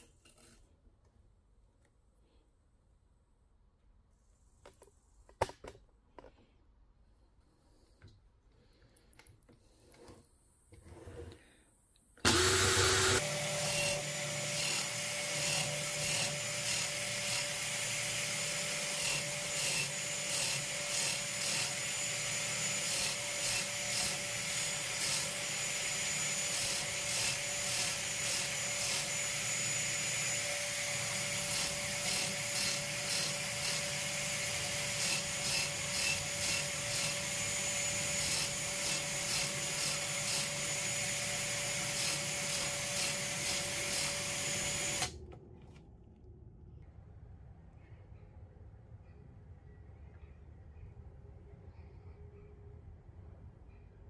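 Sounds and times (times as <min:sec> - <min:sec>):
drill motor whine: 0:12.2 - 0:45.2.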